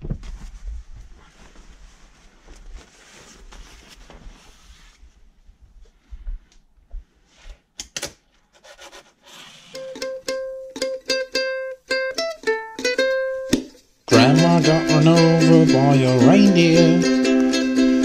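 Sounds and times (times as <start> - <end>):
cloth rustling: 0.0 - 7.7
plucked-string song intro: 9.8 - 18.0.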